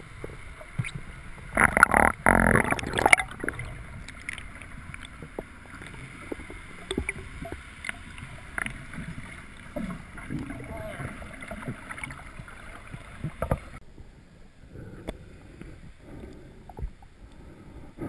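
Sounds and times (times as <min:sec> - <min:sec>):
muffled underwater wash: 0:00.0 - 0:18.0.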